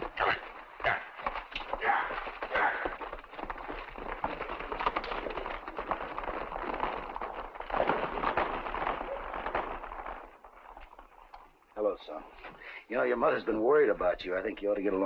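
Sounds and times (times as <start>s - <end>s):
horses galloping on dirt: 0.0s - 15.0s.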